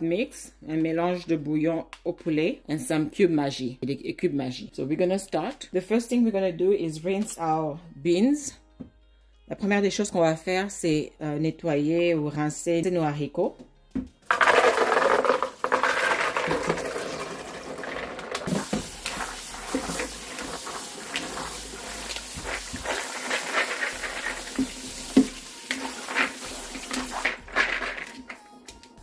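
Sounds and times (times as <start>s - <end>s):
tap water running: 14.3s - 28.2s
beans and water poured into colander: 14.3s - 28.3s
beans rattling in colander: 14.3s - 28.4s.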